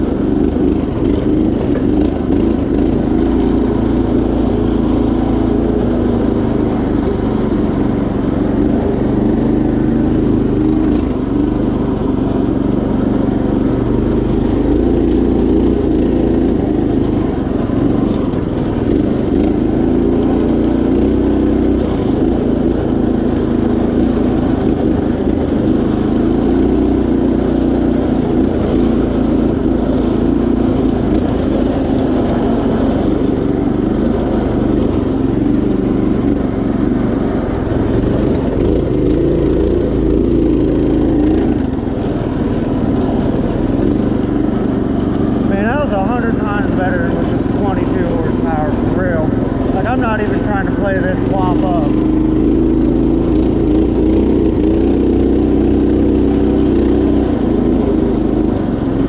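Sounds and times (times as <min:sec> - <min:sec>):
riding mower engine running: 0:00.0 - 0:59.0.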